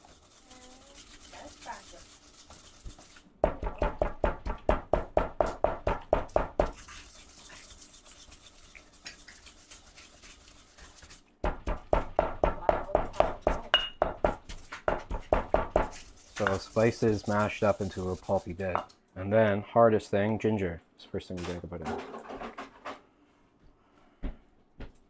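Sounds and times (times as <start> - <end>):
pestle pounding in stone mortar: 2.6 - 6.9, 11.4 - 16.6.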